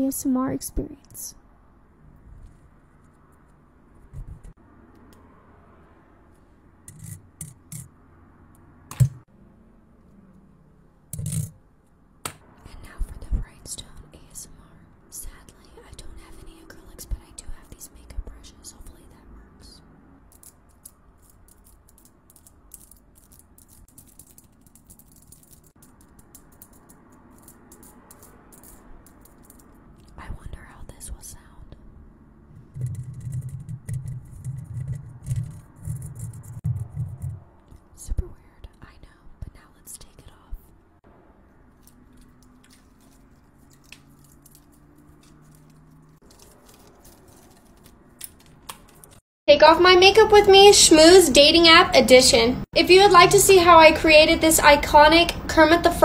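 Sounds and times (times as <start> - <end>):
fingernails tapping and scratching: 32.6 - 37.4.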